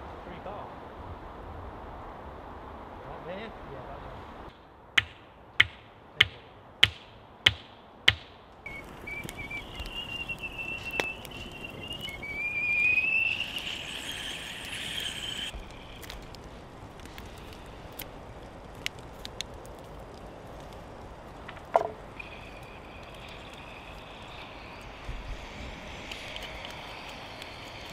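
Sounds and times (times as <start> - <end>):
hammering on wooden fence: 5.0 - 8.4
kettle whistling: 8.7 - 18.4, 21.4 - 27.9.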